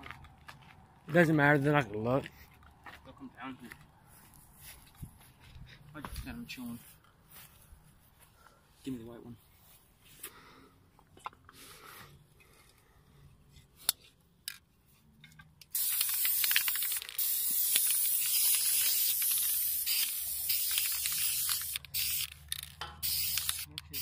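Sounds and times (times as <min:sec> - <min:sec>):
spray can hissing: 0:15.7 - 0:24.0
sharp clicks: 0:20.0 - 0:24.0.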